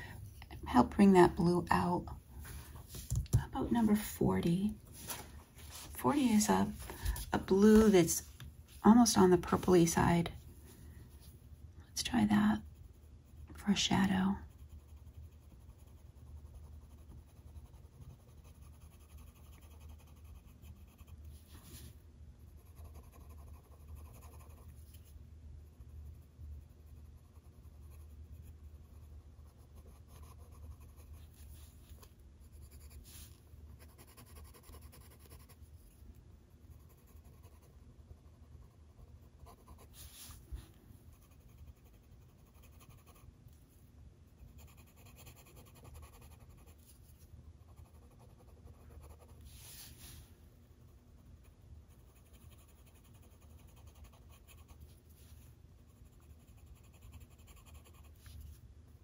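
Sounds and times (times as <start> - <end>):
pencil scratching on paper: 12.6 - 21.9, 22.5 - 25.1, 26.9 - 35.6, 36.8 - 40.4, 41.1 - 43.2, 44.4 - 50.1, 52.0 - 55.3, 56.0 - 58.5.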